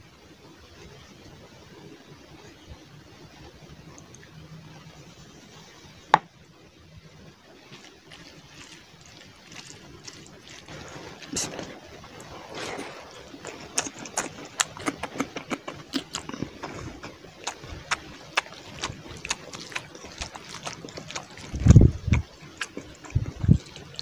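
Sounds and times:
chewing and lip-smacking: 0:03.9 - 0:04.3, 0:07.6 - 0:24.0
wet squelching of food mixed by hand: 0:07.5 - 0:24.0
liquid pouring onto rice: 0:07.6 - 0:15.9.

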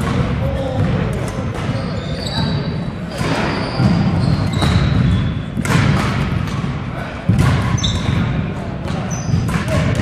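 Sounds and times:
sneakers squeaking on wooden floor: 0:01.4 - 0:06.7, 0:07.3 - 0:09.7
racket striking shuttlecock: 0:05.6 - 0:06.7.

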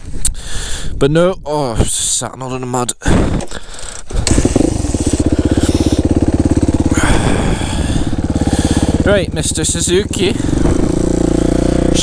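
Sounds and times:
dirt bike engine starting and idling: 0:03.4 - 0:12.0.

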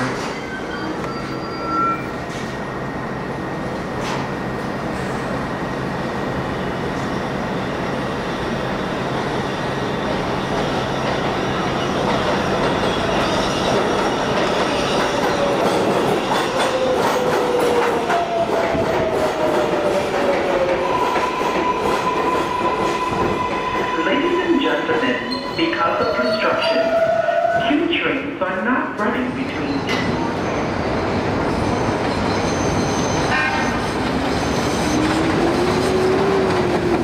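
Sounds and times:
train brakes whining: 0:00.0 - 0:02.8
subway train rumble and rail clatter: 0:00.0 - 0:37.0.

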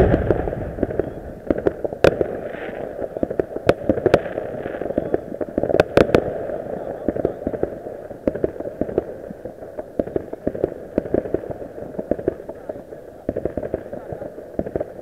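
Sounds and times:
sharp bangs: 0:00.0 - 0:02.5
continuous rumble: 0:00.0 - 0:04.0
fireworks popping and cracking: 0:00.0 - 0:15.0.

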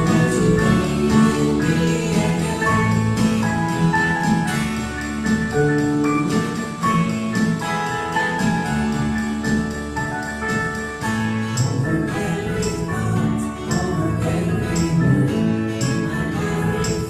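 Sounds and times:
worship band playing: 0:00.0 - 0:17.0.

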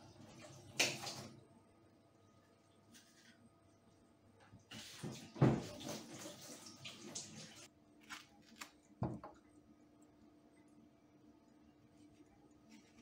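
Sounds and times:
water splashing in metal sink: 0:00.0 - 0:01.5, 0:04.6 - 0:07.7.

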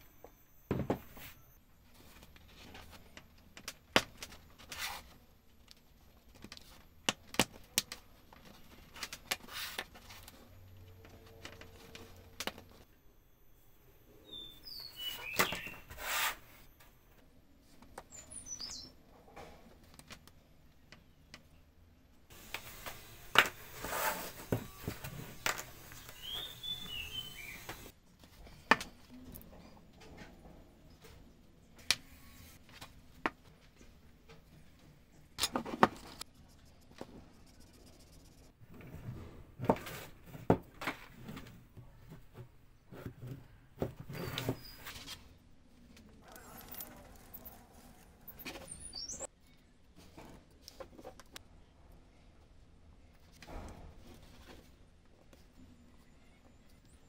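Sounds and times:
bird chirps: 0:14.0 - 0:16.0, 0:18.1 - 0:19.0, 0:25.9 - 0:27.9, 0:48.3 - 0:49.3
wood rubbing on wood: 0:22.4 - 0:27.9.

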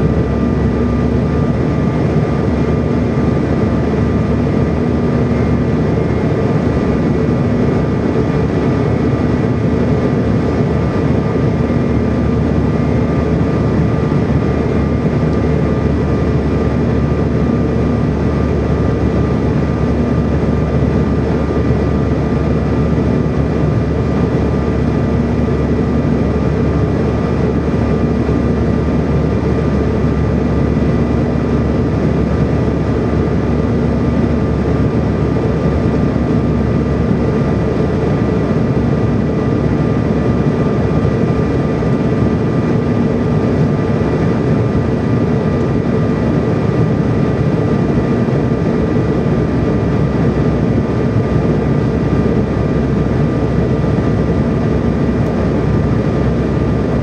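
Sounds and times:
airflow and jet engine noise: 0:00.0 - 0:57.0
low hum: 0:00.0 - 0:57.0
thin steady whine: 0:00.0 - 0:57.0.

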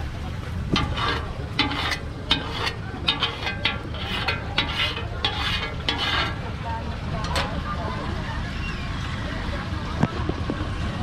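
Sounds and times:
scraper scraping a griddle: 0:00.7 - 0:06.5.

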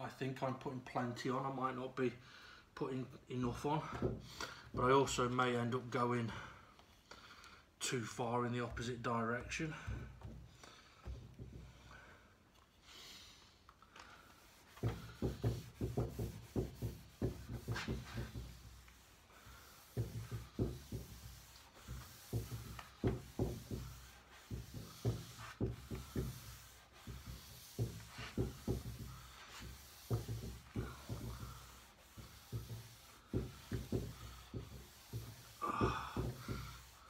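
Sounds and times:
steel wool scrubbing wood: 0:14.4 - 0:37.0.

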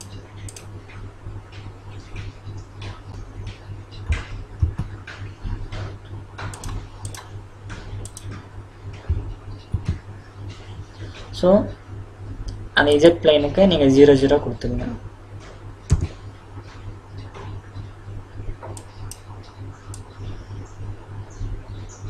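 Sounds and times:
keyboard and mouse clicks: 0:00.0 - 0:00.7, 0:06.5 - 0:07.3, 0:08.0 - 0:08.4, 0:18.7 - 0:19.3
steady low hum: 0:00.0 - 0:22.0.

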